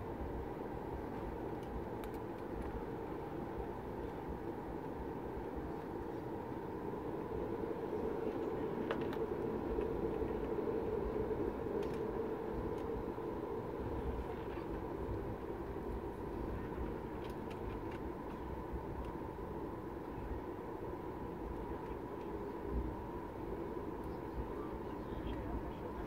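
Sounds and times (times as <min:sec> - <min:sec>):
aircraft cabin engine hum: 0:00.0 - 0:26.0
faint clicks: 0:01.6 - 0:02.8.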